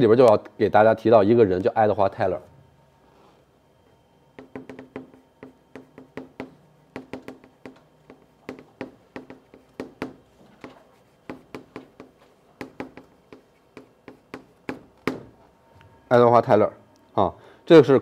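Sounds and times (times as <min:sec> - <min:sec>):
chalk tapping on blackboard: 0:04.4 - 0:15.3.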